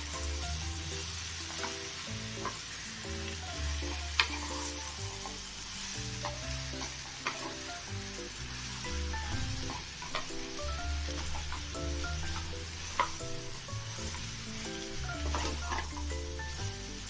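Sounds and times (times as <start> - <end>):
vegetables sizzling in a pan: 0.0 - 17.0
wooden spatula stirring: 8.5 - 16.5.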